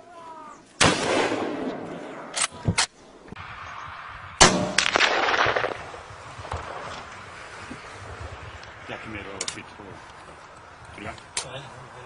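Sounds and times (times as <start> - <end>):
gunshot echo: 0.8 - 2.3, 4.4 - 6.9
rifle shots: 0.8 - 2.6, 4.4 - 6.9.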